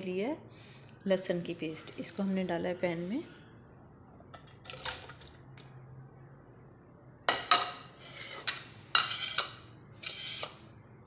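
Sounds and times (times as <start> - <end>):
spoon scraping metal pot: 7.4 - 10.7.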